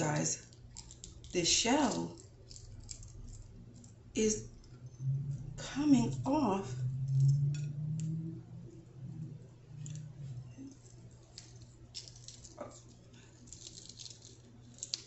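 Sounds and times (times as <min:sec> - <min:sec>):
eggshell crackling as peeled: 0:00.4 - 0:04.8, 0:10.6 - 0:15.0.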